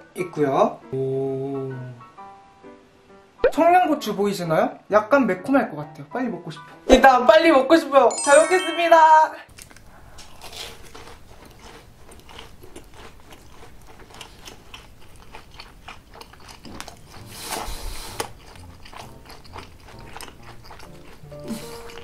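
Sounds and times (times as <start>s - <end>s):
chewing fried food: 9.5s - 22.0s
crunching: 9.6s - 17.3s.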